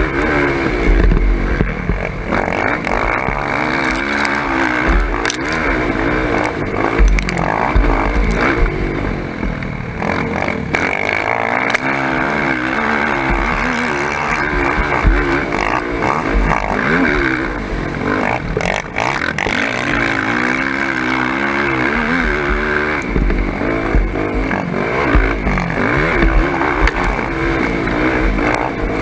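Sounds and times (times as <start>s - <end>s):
atv engine revving: 0.0s - 29.0s
sharp knocks over bumps: 0.0s - 29.0s.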